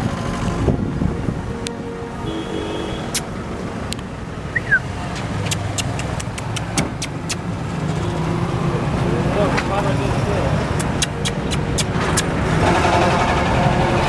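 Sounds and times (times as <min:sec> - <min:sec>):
vehicle engines rumbling: 0:00.0 - 0:14.0
sharp clicks: 0:05.4 - 0:07.5, 0:10.8 - 0:12.3.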